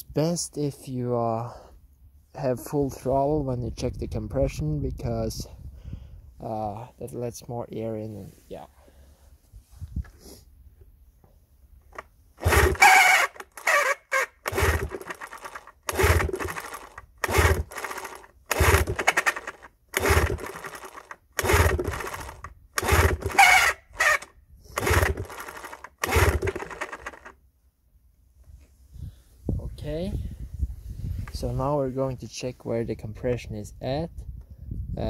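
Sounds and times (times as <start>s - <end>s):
outboard engine pull-start cranking: 11.9s - 27.4s.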